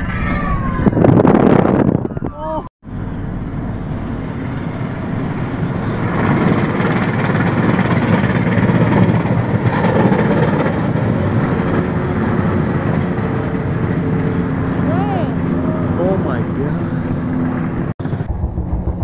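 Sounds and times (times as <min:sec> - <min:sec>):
truck driving past rumbling: 0:02.8 - 0:19.0.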